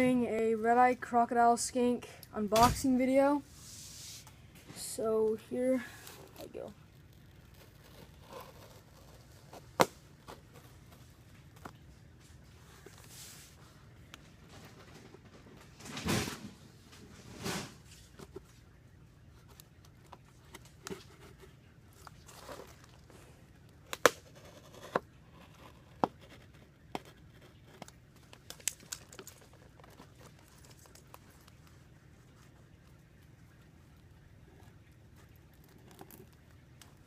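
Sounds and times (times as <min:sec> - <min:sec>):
packing tape tearing: 0:28.4 - 0:31.1.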